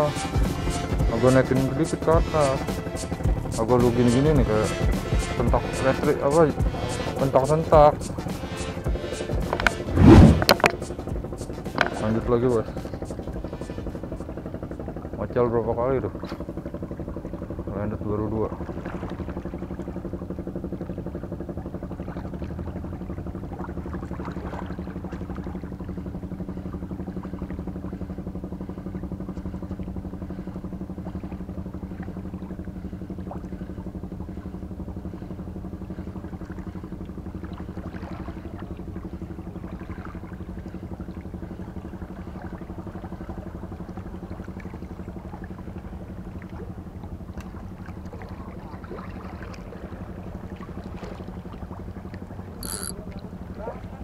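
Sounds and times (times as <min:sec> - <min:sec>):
engine droning: 0:00.0 - 0:54.0.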